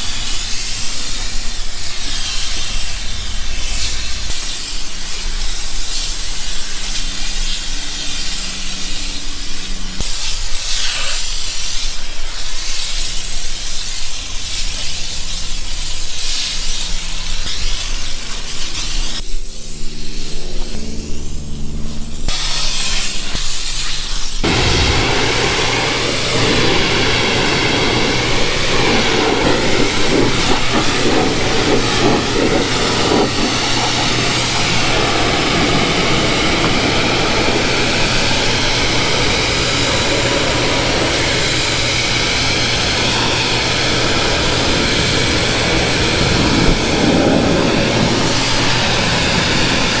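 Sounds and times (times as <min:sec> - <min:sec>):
pressure washer jet hissing: 0:00.0 - 0:50.0
pump motor humming: 0:24.4 - 0:50.0.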